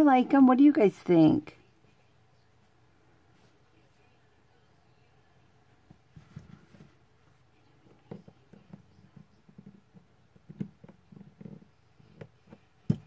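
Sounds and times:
soft taps and rubbing: 5.9s - 7.1s.

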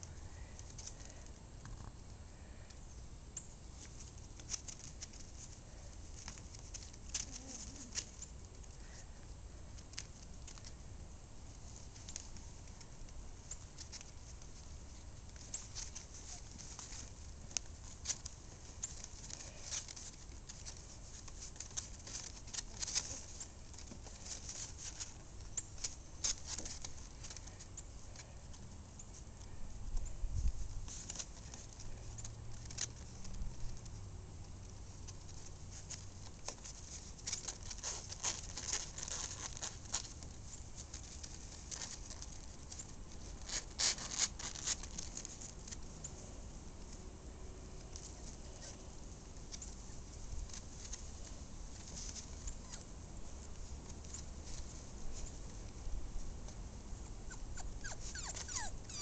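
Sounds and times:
puppy claws tapping and scuffling: 3.3s - 59.0s.

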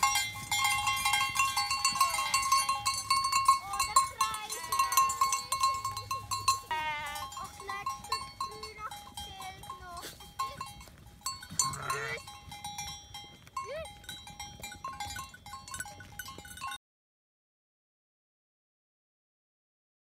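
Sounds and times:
bells ringing: 0.0s - 16.8s
sheep bleating: 2.0s - 2.7s, 6.6s - 7.7s, 11.5s - 12.2s.

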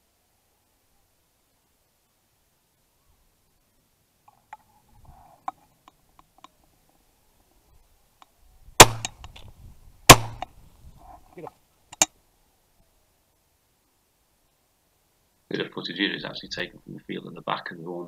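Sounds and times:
faint clicks: 4.2s - 7.0s, 8.2s - 8.4s
shotgun shots: 8.8s - 9.2s, 10.1s - 10.5s.

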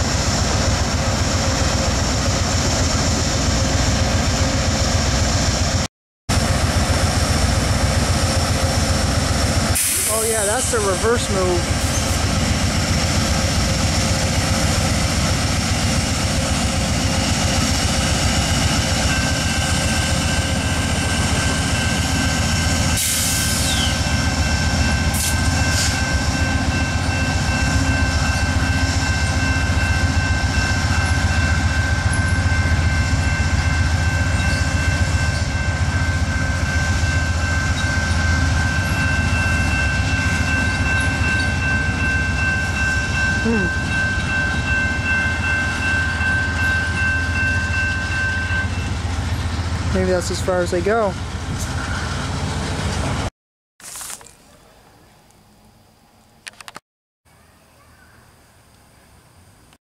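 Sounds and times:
diesel locomotive rumble: 0.0s - 53.3s.

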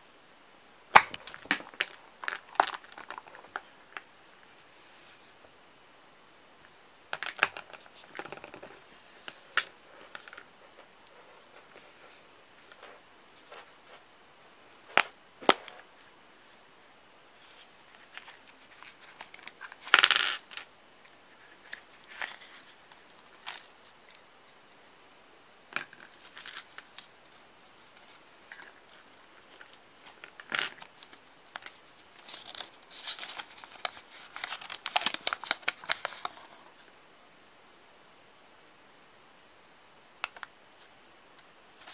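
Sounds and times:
paper wrapping crinkling: 17.4s - 20.7s, 21.3s - 24.2s, 25.8s - 36.8s
plastic toy pieces clattering: 19.1s - 20.6s.

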